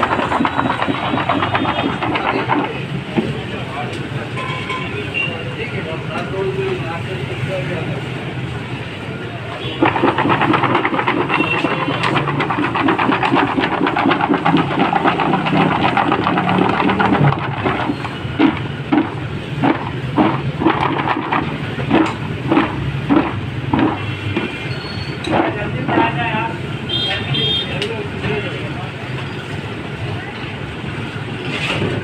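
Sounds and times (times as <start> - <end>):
potato fries clattering in a tub: 0.0 - 3.5, 9.6 - 24.7, 25.3 - 26.6.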